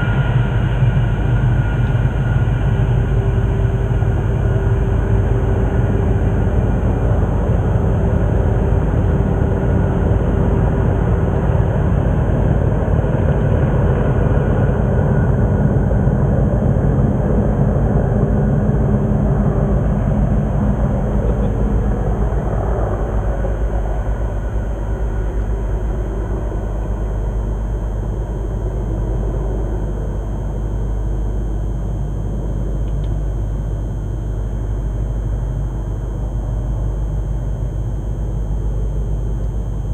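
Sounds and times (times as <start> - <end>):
diesel locomotive engines rumbling: 0.0 - 33.0.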